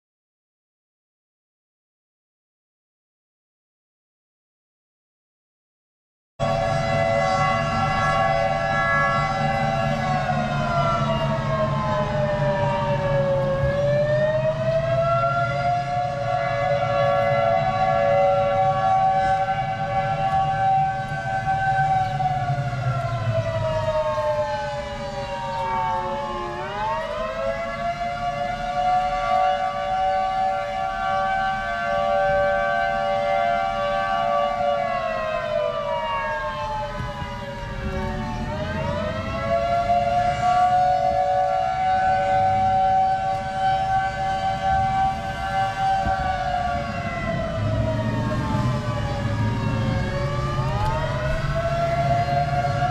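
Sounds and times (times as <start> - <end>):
car engine and road rumble: 6.4 - 29.1, 41.8 - 52.9
warning siren wailing: 6.4 - 52.9.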